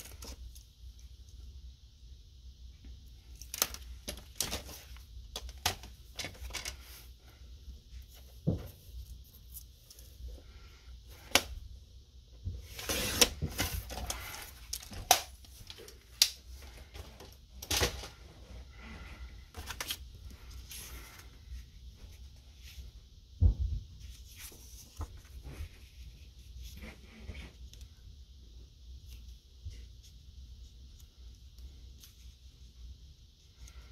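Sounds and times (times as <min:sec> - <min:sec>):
cardstock sheets handled: 0:19.5 - 0:21.3
low thump: 0:23.4 - 0:23.9.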